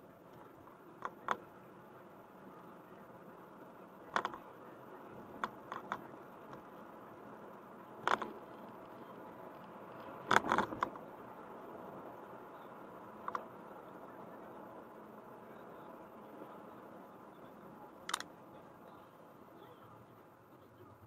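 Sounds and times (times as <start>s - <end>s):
car road noise: 0.0s - 21.0s.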